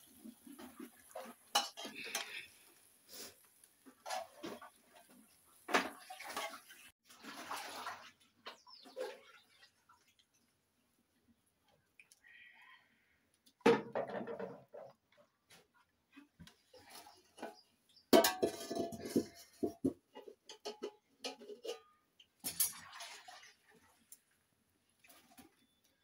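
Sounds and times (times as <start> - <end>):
plate and pot clattering: 0.6 - 2.5, 4.0 - 4.7, 17.4 - 22.8
pot clanking on hearth: 0.6 - 2.5, 17.4 - 22.8
firewood scraping and knocking: 18.2 - 21.6.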